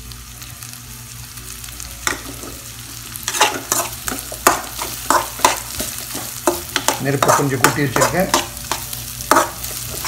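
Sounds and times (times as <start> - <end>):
vegetables sizzling in oil: 0.0 - 10.0
metal ladle clicking and scraping pan: 3.3 - 10.0.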